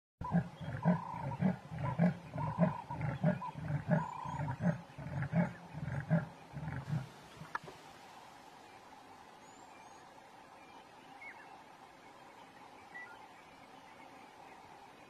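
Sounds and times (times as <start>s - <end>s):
leopard rasping grunts: 0.2s - 7.6s.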